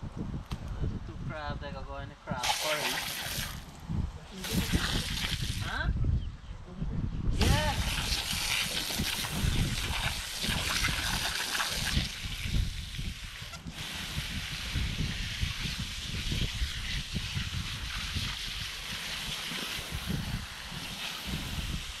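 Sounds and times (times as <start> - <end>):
wind rumbling on microphone: 0.0 - 22.0
hose spraying water: 2.4 - 3.7, 4.4 - 5.7, 7.4 - 22.0.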